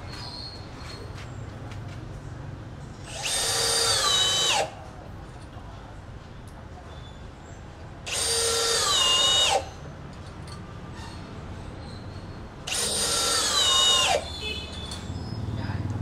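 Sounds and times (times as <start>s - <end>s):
cordless drill driving screws: 3.0s - 4.8s, 8.1s - 9.8s, 12.7s - 14.3s.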